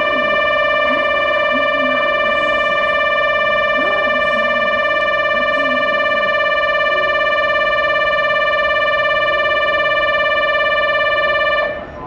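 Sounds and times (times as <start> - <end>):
faint voices: 0.0 - 7.6
loud steady electronic tone: 0.0 - 12.0.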